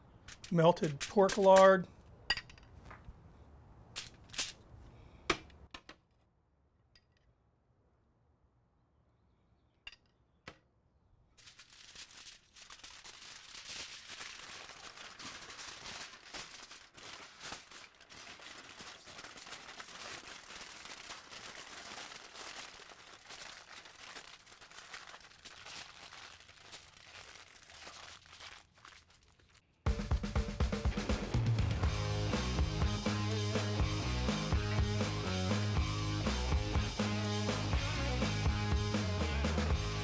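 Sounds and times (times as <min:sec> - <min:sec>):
aluminium foil crinkling: 0:11.4 - 0:29.7.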